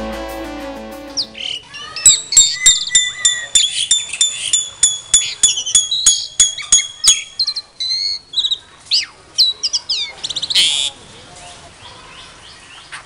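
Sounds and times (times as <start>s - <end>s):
high whistled notes: 0.0s - 7.5s
bird chirps: 1.1s - 10.8s
starlings calling: 1.2s - 8.6s.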